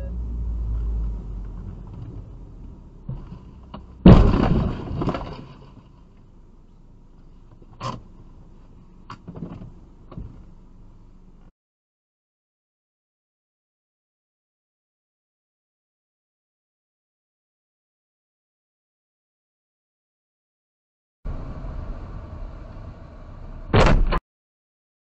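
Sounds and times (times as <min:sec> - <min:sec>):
car crash with crunching: 0:03.2 - 0:06.0, 0:23.7 - 0:24.2.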